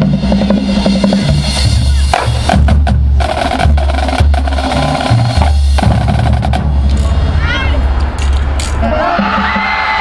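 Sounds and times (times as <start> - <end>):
snare and tenor drums playing: 0.0 - 7.1.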